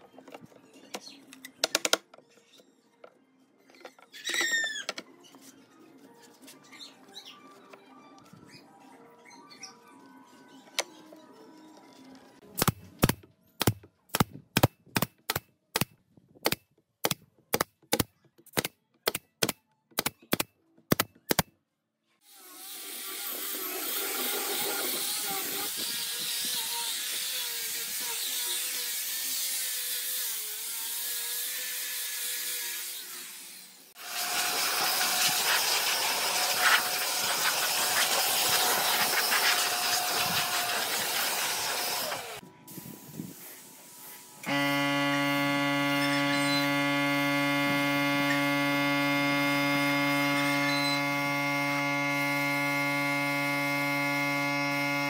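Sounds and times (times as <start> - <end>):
power sander on wood: 22.6 - 33.2, 34.0 - 42.4, 44.4 - 55.0
electric blower blowing air: 34.0 - 43.3, 44.4 - 55.0.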